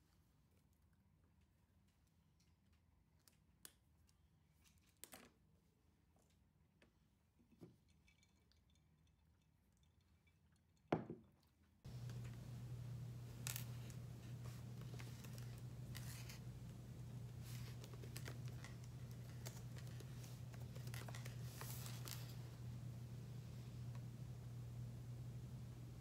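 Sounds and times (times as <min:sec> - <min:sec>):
low electrical hum: 0:00.0 - 0:26.0
objects being handled: 0:11.0 - 0:22.7.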